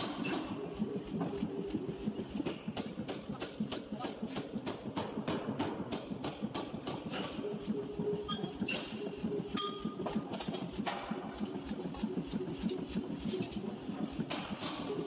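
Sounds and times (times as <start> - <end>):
power hammer striking steel: 0.0 - 0.6.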